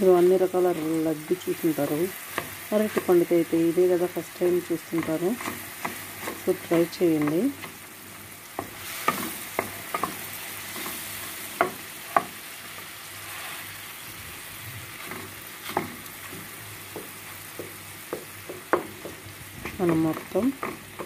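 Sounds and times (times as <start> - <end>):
banana sizzling in pan: 0.0 - 21.0
spatula tapping pan: 2.3 - 3.3, 4.9 - 7.8, 8.5 - 12.8, 15.0 - 21.0.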